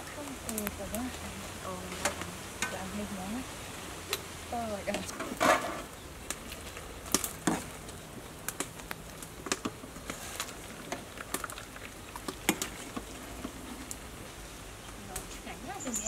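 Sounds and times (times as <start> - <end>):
metal utensils clinking on colander: 15.7 - 16.0.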